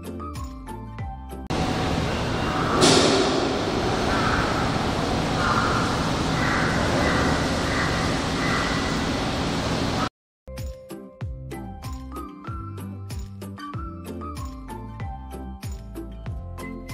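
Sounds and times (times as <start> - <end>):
birds calling: 1.5 - 10.1
low machine rumble: 1.5 - 10.1.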